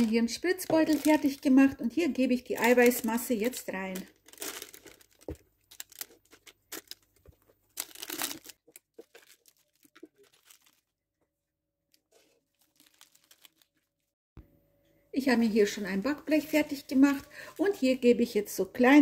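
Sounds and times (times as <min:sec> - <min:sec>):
piping bag crinkling: 0:00.0 - 0:11.0, 0:12.0 - 0:14.1.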